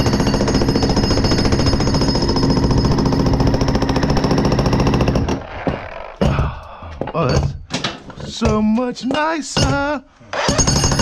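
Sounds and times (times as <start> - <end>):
jackhammer pounding concrete: 0.0 - 6.1, 10.4 - 11.0.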